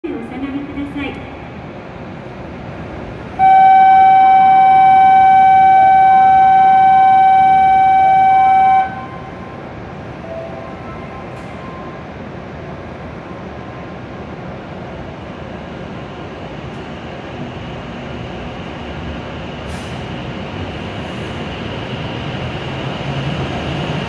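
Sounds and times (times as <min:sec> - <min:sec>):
station hum: 0:03.0 - 0:11.3
electronic departure tone: 0:03.4 - 0:09.4.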